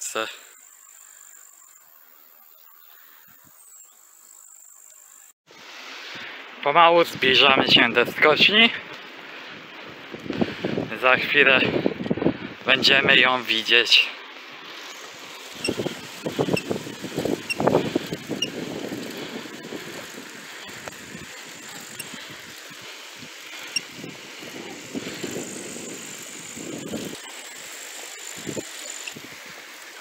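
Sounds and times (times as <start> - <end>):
tyres hissing on asphalt: 4.2 - 30.0
wind buffeting microphone: 9.6 - 13.2, 15.5 - 27.2.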